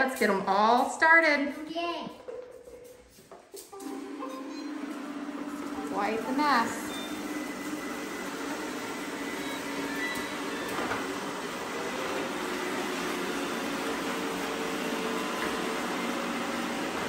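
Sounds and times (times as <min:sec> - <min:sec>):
robot vacuums whirring: 0:03.8 - 0:17.0.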